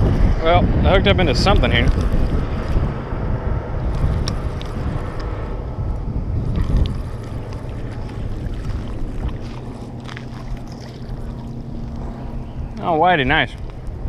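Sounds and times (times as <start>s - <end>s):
wind buffeting microphone: 0.0s - 14.0s
fish splashing: 6.4s - 12.9s.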